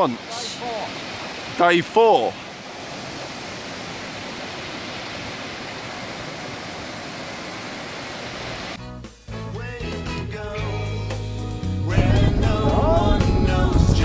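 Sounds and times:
waterfall rushing over rocks: 0.0 - 8.8
music: 8.8 - 14.0.

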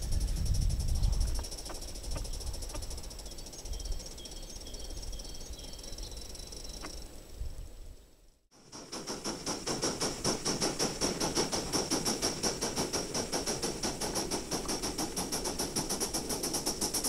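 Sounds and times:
steady high steam hiss: 0.0 - 17.0
model steam locomotive chuffing: 8.5 - 17.0.

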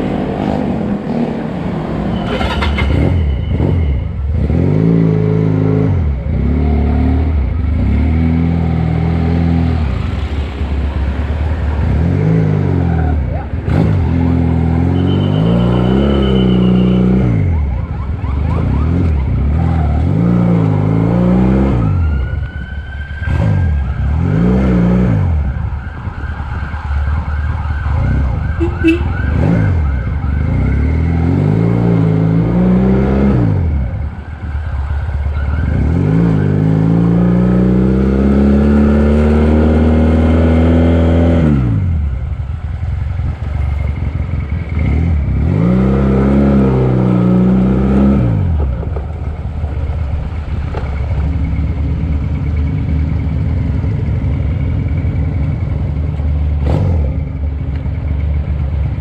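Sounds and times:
motorcycle engine revving: 0.0 - 10.8, 35.4 - 59.0
road and wind rumble: 0.0 - 59.0.

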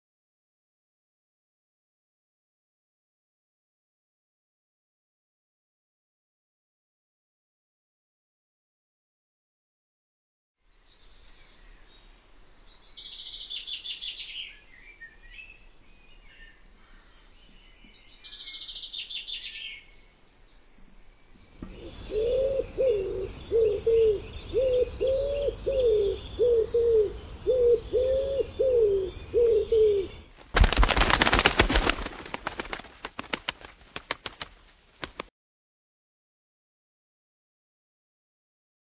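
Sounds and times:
pigeon cooing: 21.6 - 30.2
wings flapping: 30.4 - 35.3.

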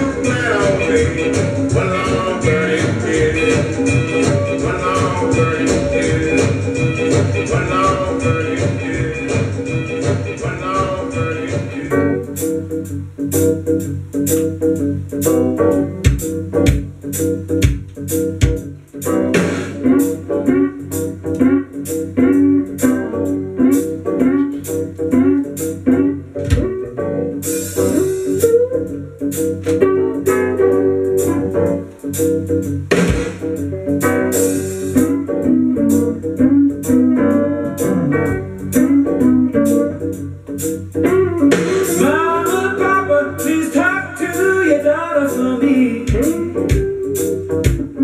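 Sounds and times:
person singing: 0.0 - 12.2, 41.4 - 48.0
rock and roll guitar over beat: 0.0 - 48.0.

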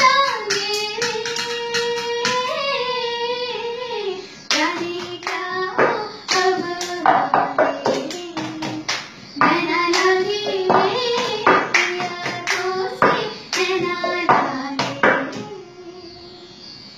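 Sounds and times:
cup taps and hand claps: 0.0 - 2.5, 4.5 - 15.5
person singing: 0.0 - 16.5.

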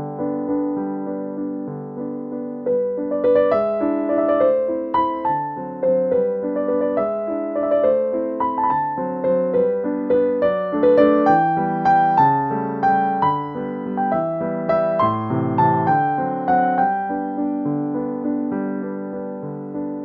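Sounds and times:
gentle piano music: 0.0 - 20.0.

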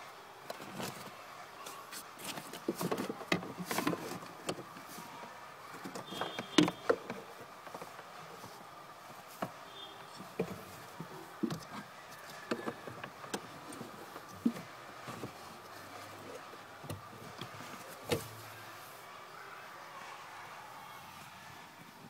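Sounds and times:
plastic clicks and scrapes: 0.5 - 5.0, 5.7 - 8.5.

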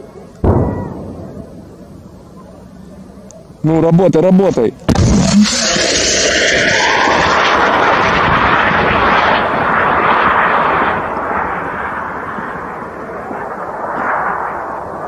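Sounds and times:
rocket rushing roar: 0.4 - 2.2, 4.9 - 15.0.

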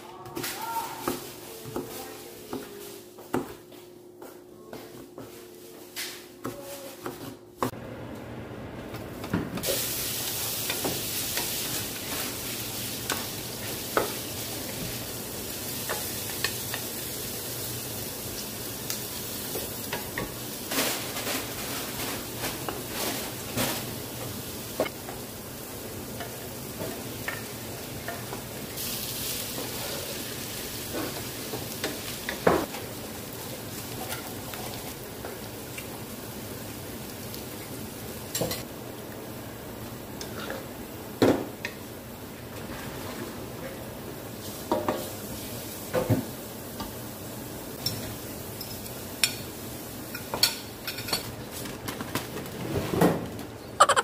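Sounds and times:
food sizzling in frying pan: 9.6 - 51.5.

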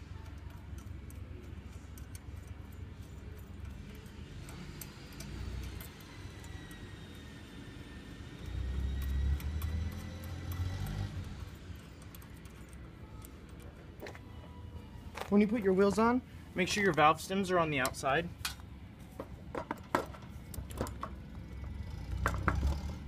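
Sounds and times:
small metal parts clinking: 0.2 - 13.8.

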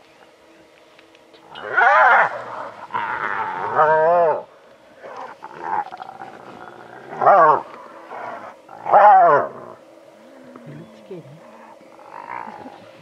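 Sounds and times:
hyena calling: 1.4 - 13.0.

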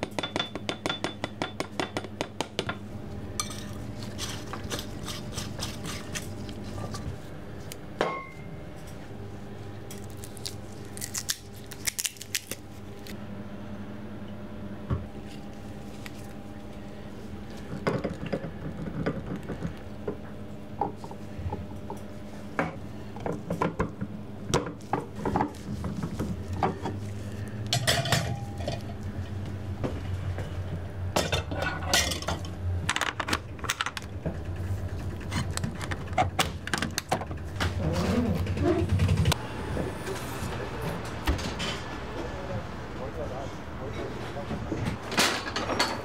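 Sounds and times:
steady low hum: 0.0 - 45.0
kitchen utensils clinking: 27.8 - 28.9, 31.2 - 32.5.

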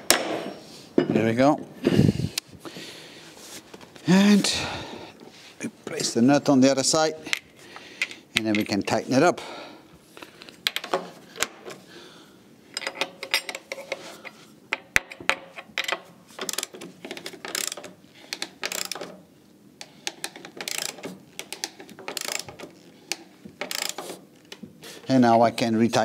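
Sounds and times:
ratchet wrench clicking: 15.8 - 19.1, 20.2 - 24.1.

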